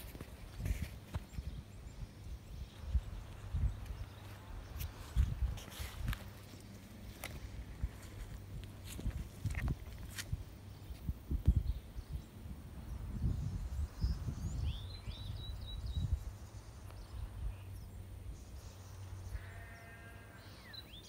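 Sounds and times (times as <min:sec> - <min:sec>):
sheep bleating: 0:19.3 - 0:20.6.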